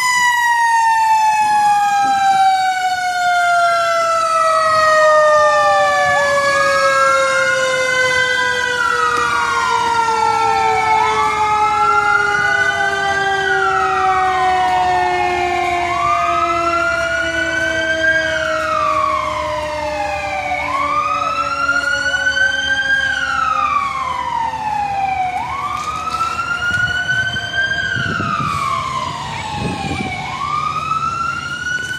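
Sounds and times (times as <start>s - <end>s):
fire engine siren wailing: 0.0s - 31.9s
lower siren tone sliding down: 0.0s - 31.9s.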